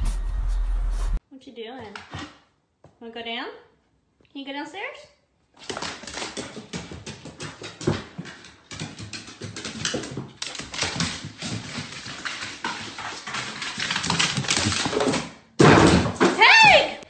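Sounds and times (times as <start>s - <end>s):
dog claws clicking on wooden stairs: 5.6s - 16.3s.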